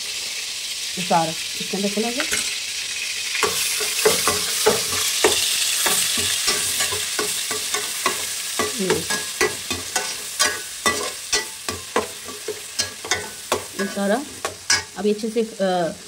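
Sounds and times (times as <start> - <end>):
paste sizzling in hot oil: 0.0 - 16.0
metal spoon scraping a pot: 3.4 - 15.0.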